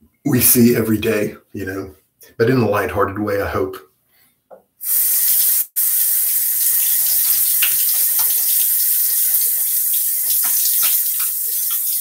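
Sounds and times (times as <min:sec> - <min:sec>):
water splashing: 0:06.2 - 0:12.0
tap running into sink: 0:06.8 - 0:08.7, 0:10.3 - 0:12.0.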